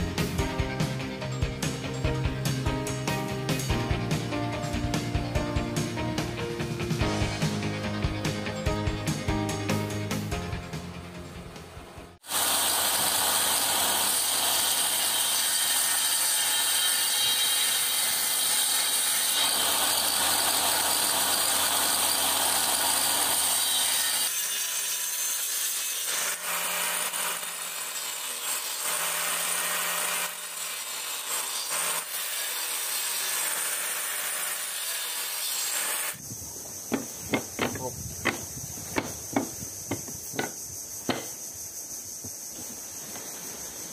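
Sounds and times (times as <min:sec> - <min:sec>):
electric saw cutting wood: 0:12.2 - 0:36.2.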